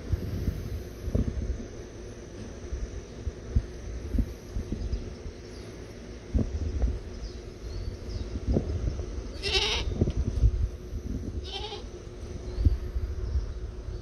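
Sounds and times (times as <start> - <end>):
goat bleating: 9.4 - 9.9, 11.4 - 11.9.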